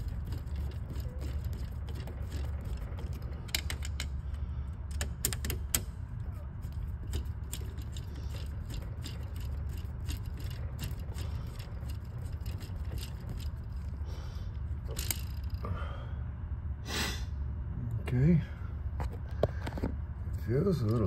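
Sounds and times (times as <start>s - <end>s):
screwdriver clicking on bolts: 0.0s - 4.2s, 4.9s - 5.9s
steady low hum: 0.0s - 21.0s.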